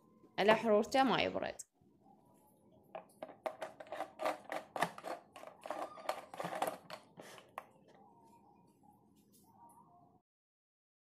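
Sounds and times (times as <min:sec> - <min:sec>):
plastic screw lid clicking: 0:03.5 - 0:07.1.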